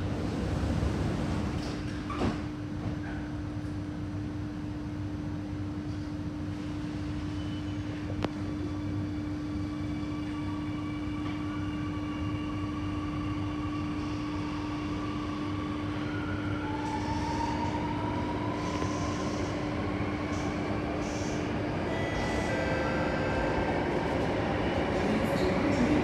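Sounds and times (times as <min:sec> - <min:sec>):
metro train car hum and rumble: 0:00.0 - 0:26.0.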